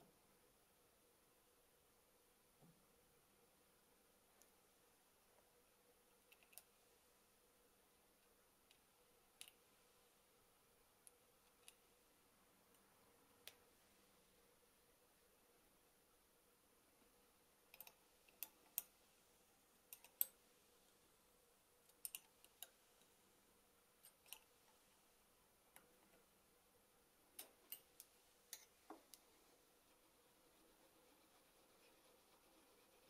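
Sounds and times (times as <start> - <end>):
metal parts clicking and tapping: 19.9 - 20.4.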